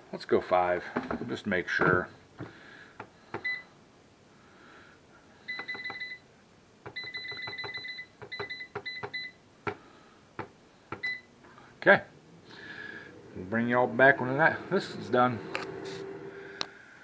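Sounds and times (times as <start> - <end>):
control panel beeping: 5.5 - 6.2, 6.9 - 9.4.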